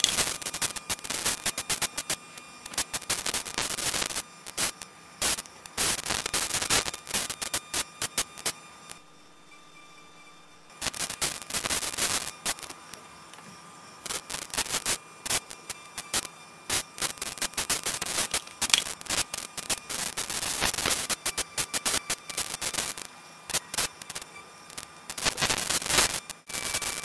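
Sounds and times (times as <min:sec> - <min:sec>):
crackling static: 0:00.0 - 0:27.0
faint steady high tone: 0:03.4 - 0:25.0.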